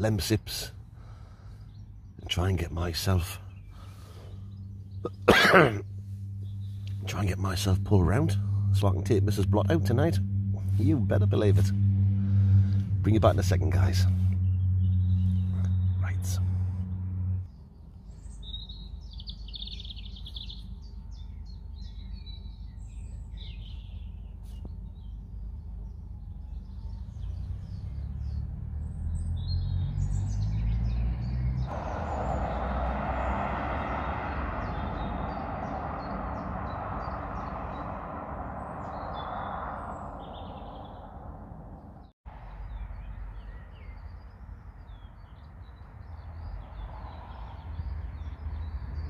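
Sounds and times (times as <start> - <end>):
small birds chirping: 0.0 - 11.5, 13.2 - 49.0
low rumble: 3.3 - 43.4
steady rushing noise: 3.8 - 17.6, 31.7 - 42.0.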